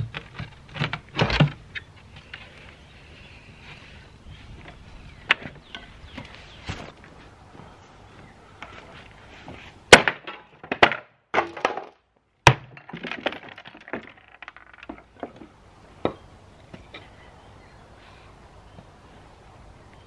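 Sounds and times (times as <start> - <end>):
wood crackling and clattering: 0.0 - 2.7, 9.9 - 17.1.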